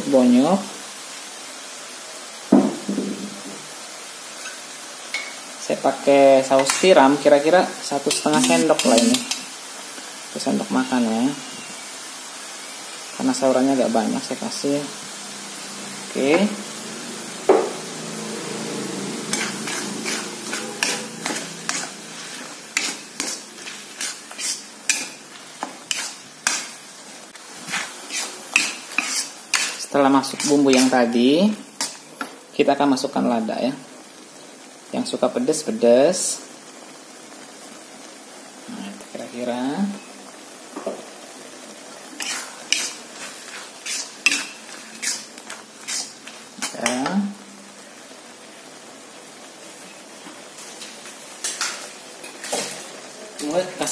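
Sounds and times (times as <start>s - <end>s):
food sizzling in a wok: 0.0s - 53.9s
metal spatula scraping a pan: 6.4s - 7.2s, 7.9s - 9.6s, 19.2s - 26.8s, 27.6s - 31.2s, 31.8s - 32.1s, 42.1s - 47.1s.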